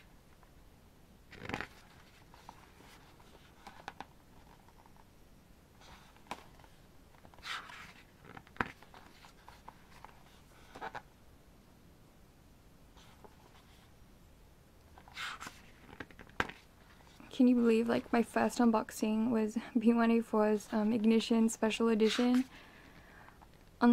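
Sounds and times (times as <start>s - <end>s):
paper pages swishing: 15.0s - 17.2s, 22.0s - 22.6s.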